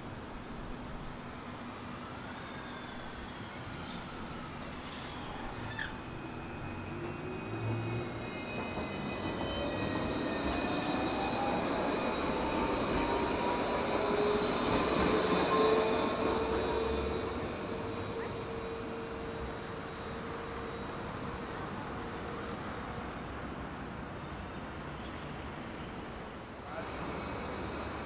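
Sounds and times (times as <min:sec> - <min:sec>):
street noise: 0:00.0 - 0:28.0
tram rolling rumble: 0:00.0 - 0:28.0
electric tram drive whining: 0:03.3 - 0:22.2.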